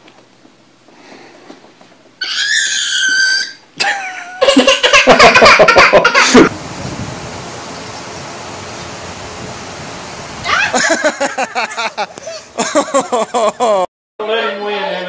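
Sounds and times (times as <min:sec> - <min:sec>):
high-pitched squealing calls: 0:02.2 - 0:03.6
pulsing hard laughter: 0:03.8 - 0:06.5, 0:10.5 - 0:13.9.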